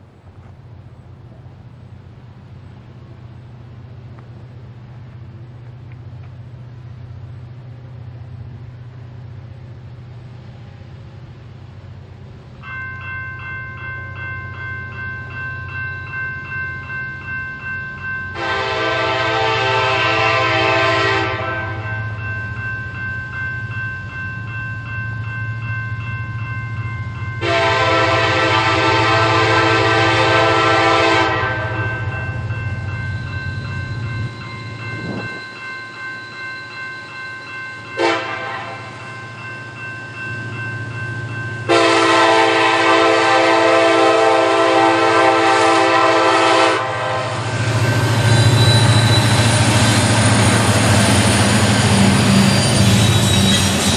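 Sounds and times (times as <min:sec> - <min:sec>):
locomotive air horn blasts: 0:18.4 - 0:21.9, 0:27.4 - 0:31.9, 0:38.0 - 0:38.9, 0:41.7 - 0:47.6.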